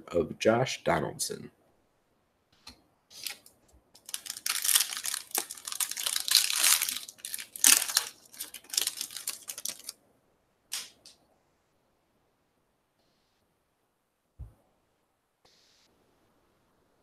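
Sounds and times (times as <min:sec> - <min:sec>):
foil wrapper tearing and crinkling: 0:03.2 - 0:09.9
sharp foil crackle: 0:03.2 - 0:10.0.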